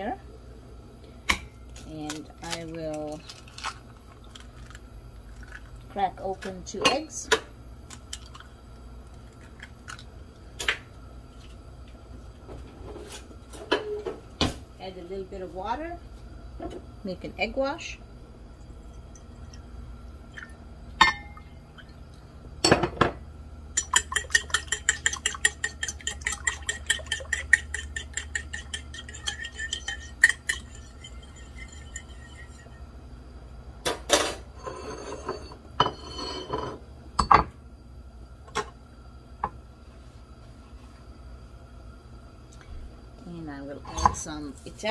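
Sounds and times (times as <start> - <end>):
dishes set down on wood: 22.6 - 23.2, 35.2 - 37.6
fork clinking against bowl: 23.8 - 32.7.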